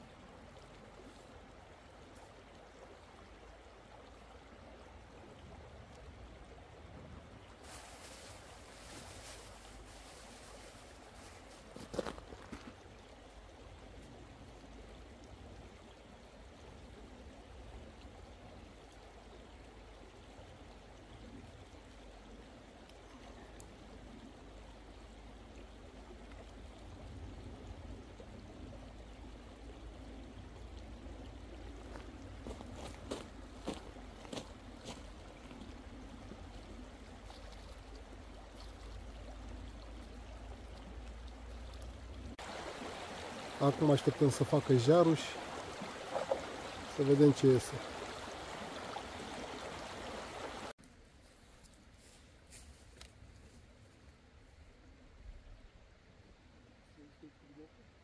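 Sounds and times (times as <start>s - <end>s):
river running over stones: 0.0s - 50.8s
short rustle: 7.6s - 12.4s.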